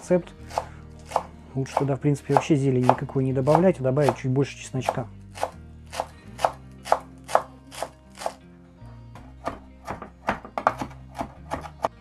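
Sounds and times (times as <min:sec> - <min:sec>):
faint background music: 0:00.0 - 0:12.0
knife chopping on wooden board: 0:00.5 - 0:04.2, 0:04.8 - 0:08.4, 0:09.2 - 0:11.9.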